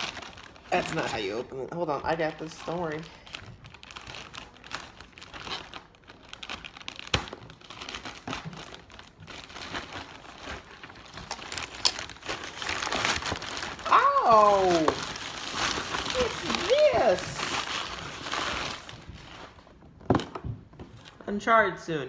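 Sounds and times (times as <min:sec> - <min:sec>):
plastic bag crinkling: 0:00.0 - 0:19.9
scissors cutting plastic: 0:11.2 - 0:13.4.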